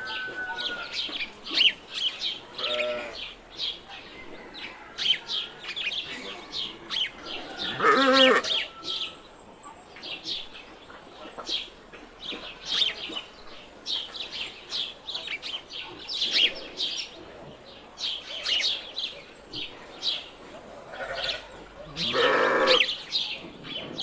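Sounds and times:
small birds chirping: 0.0s - 24.0s
sheep or goat bleating: 20.9s - 22.9s.

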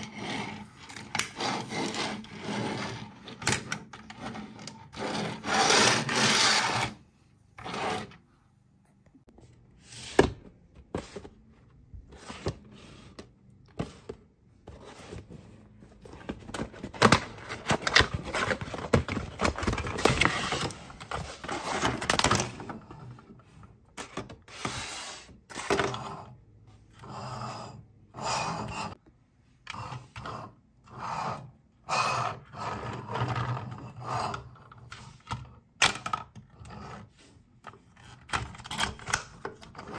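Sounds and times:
plastic toys scraping and clicking: 0.0s - 8.3s, 16.0s - 29.0s, 29.6s - 39.9s.

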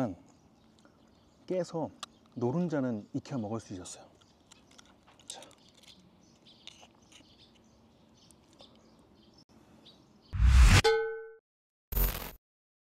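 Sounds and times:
faint birds chirping: 0.0s - 10.4s
sound effect hit with ringing tone: 10.4s - 11.4s.

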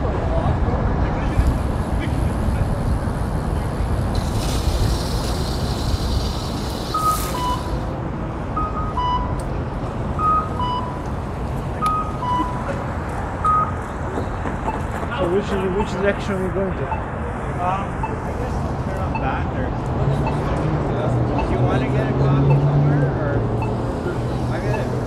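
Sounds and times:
steady traffic: 0.0s - 25.0s
hiss: 4.1s - 7.9s
crossing signal two-note beep: 7.0s - 7.8s, 8.6s - 9.4s, 10.2s - 11.0s, 11.8s - 12.7s, 21.4s - 21.6s.

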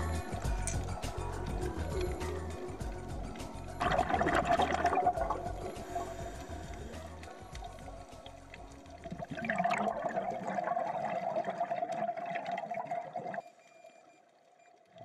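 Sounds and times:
steady hum: 0.0s - 8.9s
regulator bubbles gurgling underwater: 2.8s - 13.6s.

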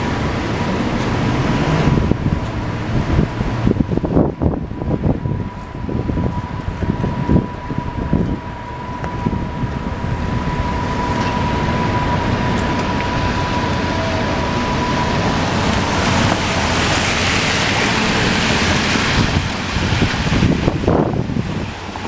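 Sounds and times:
street traffic on wet pavement: 0.0s - 22.0s
tyre hiss of passing vehicle: 10.8s - 22.0s.

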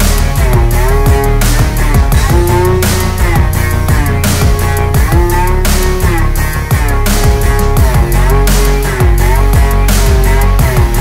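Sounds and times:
music with guitar and beat: 0.0s - 11.0s.

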